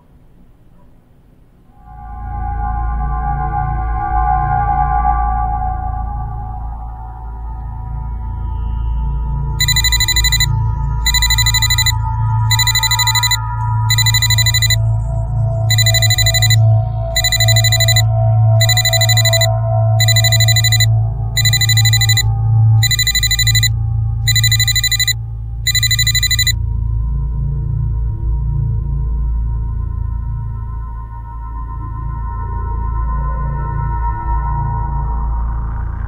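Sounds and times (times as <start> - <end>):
low background music drone: 1.7 - 36.0
phone ringtone ringing: 9.6 - 14.8, 15.7 - 23.7, 24.3 - 26.6.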